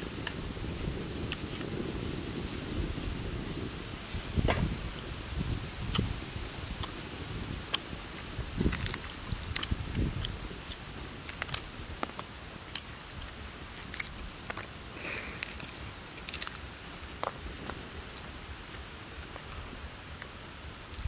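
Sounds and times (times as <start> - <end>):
eggshell crackling: 4.5 - 21.0.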